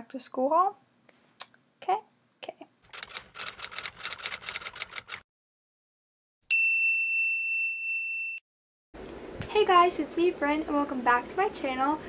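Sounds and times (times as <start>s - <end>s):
scattered clicks: 2.9s - 5.2s
typewriter key clacks: 2.9s - 5.2s.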